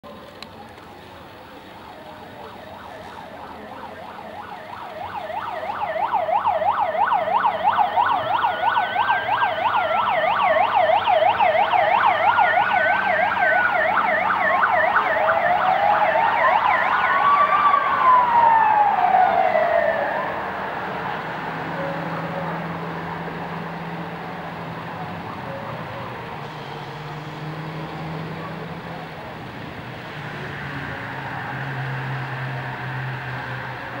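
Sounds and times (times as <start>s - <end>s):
wailing siren: 1.4s - 34.0s
fast yelp siren: 1.8s - 20.6s, 24.9s - 26.3s.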